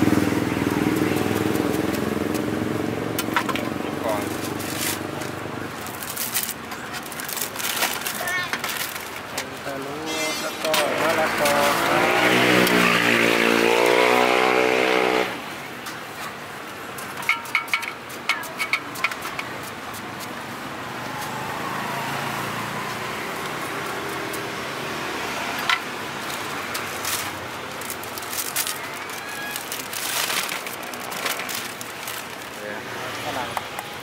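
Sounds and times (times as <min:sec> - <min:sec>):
vehicle engine running: 0:00.0 - 0:05.8
street background: 0:00.0 - 0:34.0
plastic bags crinkling: 0:03.5 - 0:10.0, 0:26.1 - 0:33.2.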